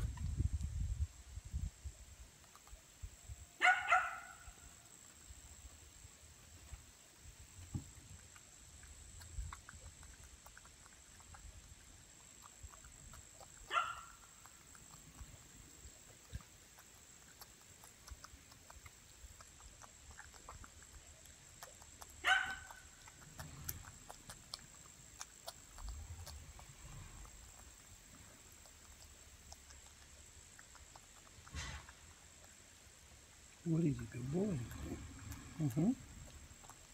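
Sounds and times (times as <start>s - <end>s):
animal chewing: 2.1s - 36.9s
dog barking: 3.6s - 4.5s, 13.6s - 14.2s, 22.2s - 22.8s.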